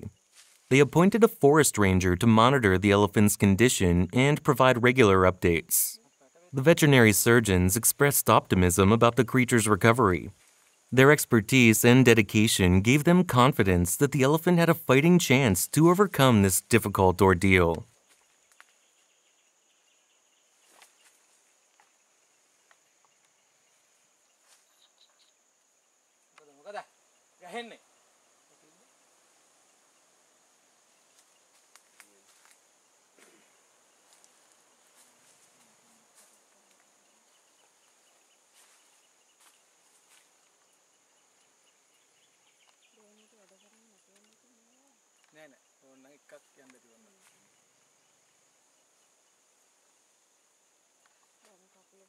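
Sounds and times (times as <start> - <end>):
high insect whine: 17.9 - 52.0.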